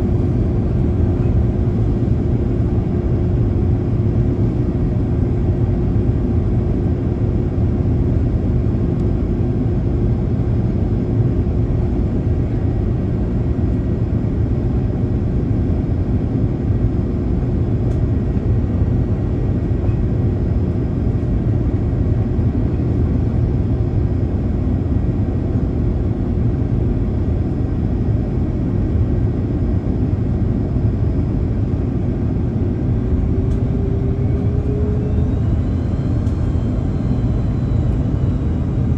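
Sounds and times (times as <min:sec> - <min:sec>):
jet engine hum: 0:00.0 - 0:38.9
airflow rumble: 0:29.9 - 0:38.9.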